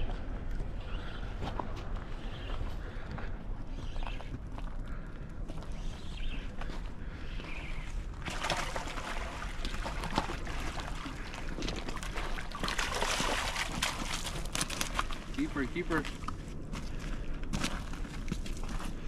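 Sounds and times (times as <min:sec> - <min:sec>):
fish splashing: 0:08.2 - 0:16.3
clicks and scuffs on rocks: 0:13.8 - 0:19.0.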